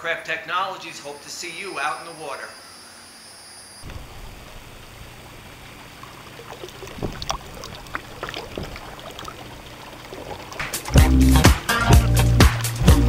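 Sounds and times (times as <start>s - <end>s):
sharp splashes: 3.8s - 12.8s
water churning from propeller: 3.8s - 13.0s.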